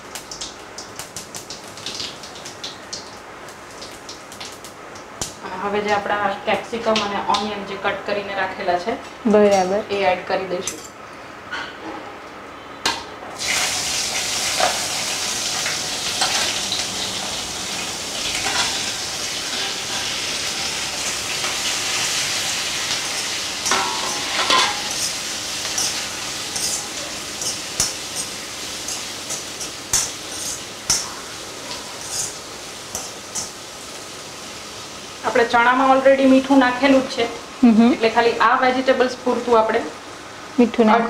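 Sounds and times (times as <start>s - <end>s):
vegetables sizzling in oil: 0.0s - 10.4s, 13.4s - 41.0s
steel spoon scraping and clinking: 23.6s - 33.5s.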